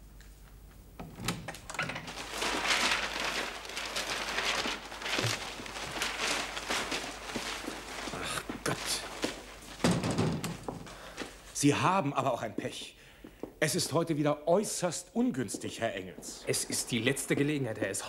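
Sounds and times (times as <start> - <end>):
paper rustling and crumpling: 1.9 - 11.6.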